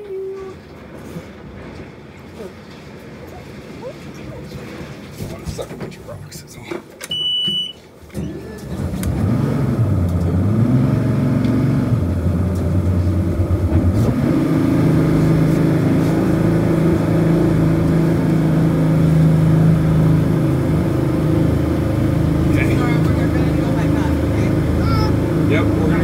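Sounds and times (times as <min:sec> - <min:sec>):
jet boat engine running: 0:08.7 - 0:26.0.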